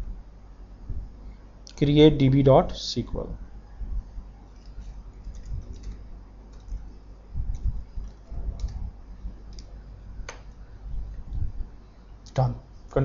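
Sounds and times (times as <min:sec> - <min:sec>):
soft low thumps: 0:00.8 - 0:01.2, 0:03.8 - 0:04.3, 0:06.7 - 0:11.8
computer keyboard typing: 0:04.6 - 0:06.9, 0:07.5 - 0:10.5.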